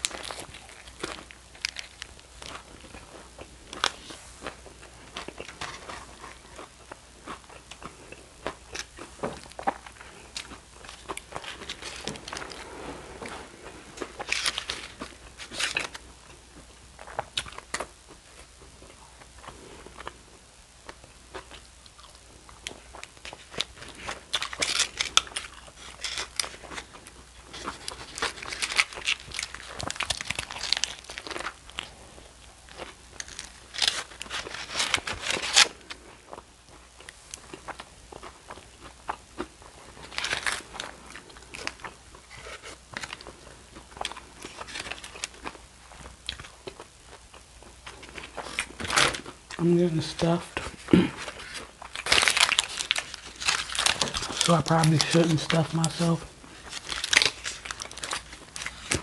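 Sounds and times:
foil crinkling: 0.0s - 3.1s, 9.5s - 12.6s, 14.0s - 16.0s, 23.0s - 32.0s, 32.7s - 36.0s, 40.0s - 43.4s, 44.0s - 45.5s, 47.9s - 59.0s.

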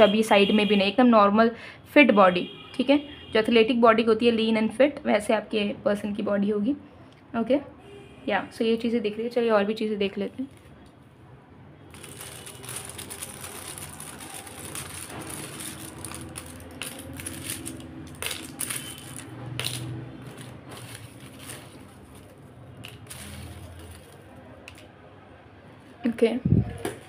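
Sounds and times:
plastic pieces rustling and clattering: 11.9s - 24.9s.

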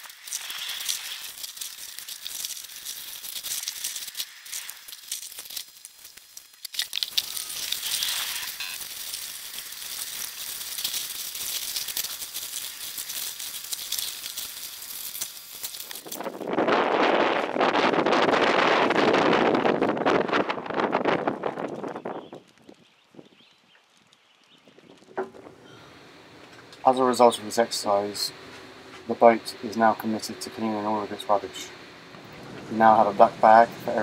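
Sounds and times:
plastic bags crinkling: 0.0s - 16.5s.

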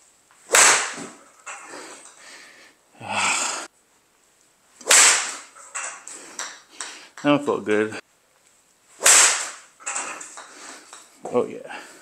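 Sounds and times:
golf iron striking ball: 0.5s - 1.2s, 4.8s - 6.6s, 9.0s - 10.5s.

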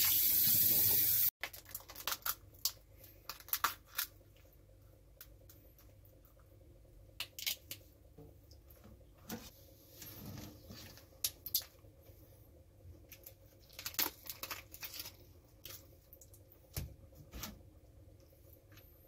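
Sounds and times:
lobster shell cracking: 7.2s - 7.8s.

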